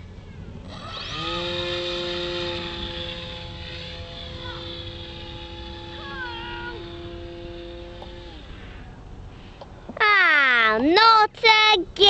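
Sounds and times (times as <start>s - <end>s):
wind rumbling on microphone: 0.0s - 10.0s
model plane motor whine: 0.6s - 9.7s.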